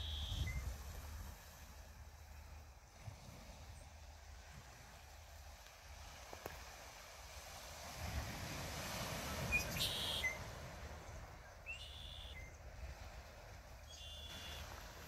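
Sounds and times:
short high bird chirps: 0.0s - 0.7s, 9.6s - 10.4s, 11.7s - 12.6s, 13.9s - 14.6s
wind buffeting microphone: 0.0s - 1.8s.

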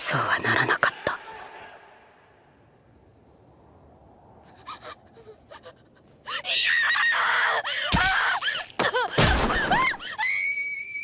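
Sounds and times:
young woman screaming: 6.3s - 11.0s.

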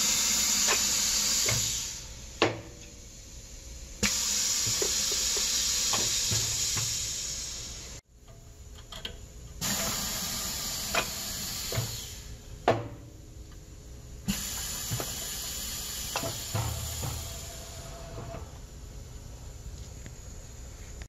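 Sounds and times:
compressed air hissing: 0.0s - 8.0s, 9.6s - 12.4s, 14.2s - 18.6s.

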